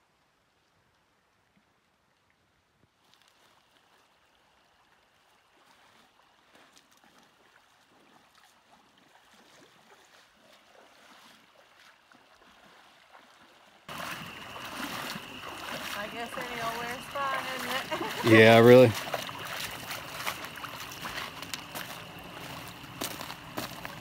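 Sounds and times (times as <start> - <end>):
flowing creek water: 0.0 - 24.0.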